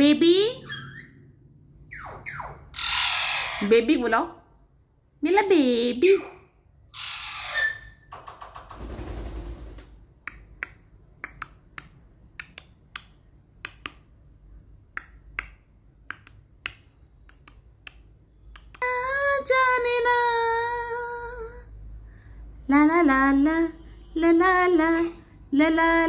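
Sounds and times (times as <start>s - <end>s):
sharp irregular clicks: 14.9s - 18.8s.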